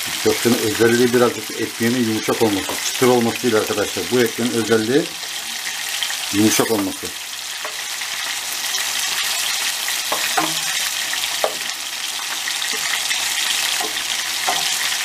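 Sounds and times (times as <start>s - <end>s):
food sizzling in a pan: 0.0s - 15.0s
wooden spatula knocks: 11.4s - 11.7s, 13.7s - 14.8s.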